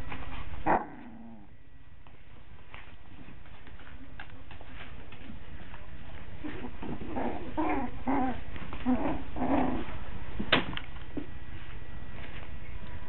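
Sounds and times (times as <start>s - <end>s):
puppies growling and yipping: 0.6s - 1.5s, 6.4s - 10.0s.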